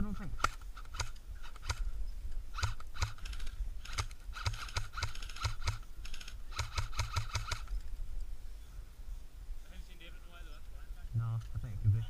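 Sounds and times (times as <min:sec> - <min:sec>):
airsoft gunfire: 0:06.5 - 0:07.7.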